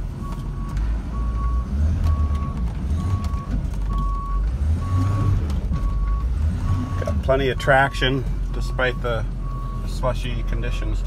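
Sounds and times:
truck engine rumble: 0.0s - 11.0s
reverse alarm beeping: 0.6s - 10.8s.

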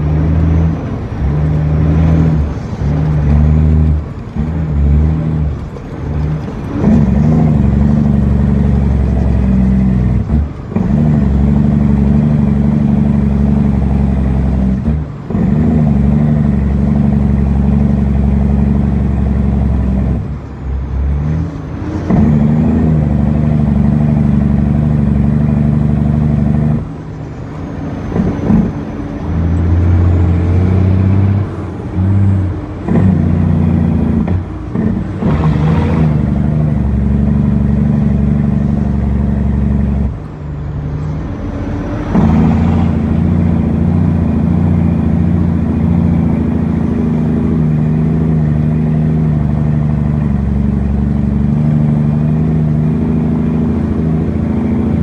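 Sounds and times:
truck diesel engine under load: 0.0s - 55.0s.

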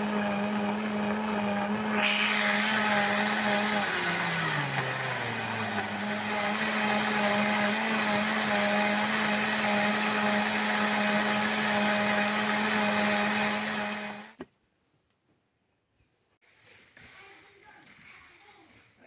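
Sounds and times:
blender running: 0.0s - 14.4s.

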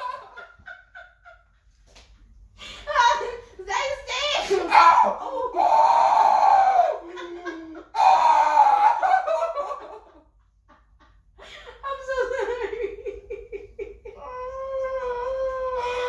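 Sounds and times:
person laughing hard: 0.0s - 1.3s, 6.6s - 10.2s.

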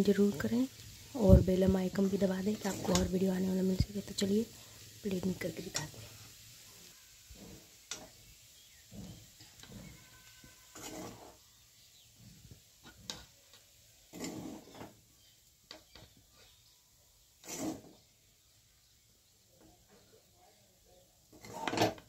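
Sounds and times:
metal spatula scraping pan: 2.5s - 3.2s, 6.7s - 11.4s, 12.8s - 13.4s, 14.0s - 15.0s, 17.4s - 18.0s, 21.3s - 22.0s
spatula tapping pan: 5.7s - 6.0s.

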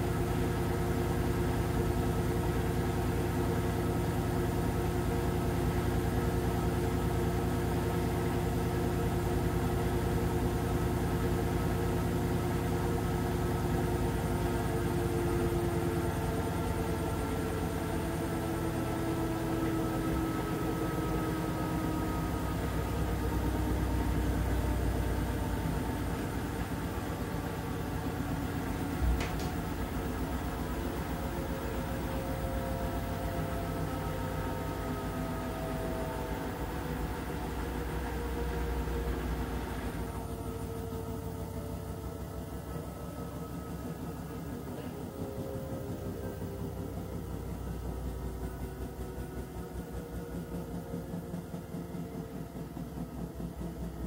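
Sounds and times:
washing machine motor hum: 0.0s - 54.0s
machine whining tones: 14.0s - 54.0s.

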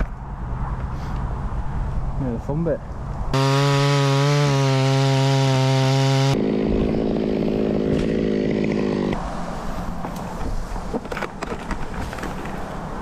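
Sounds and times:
chainsaw cutting wood: 3.3s - 9.2s.

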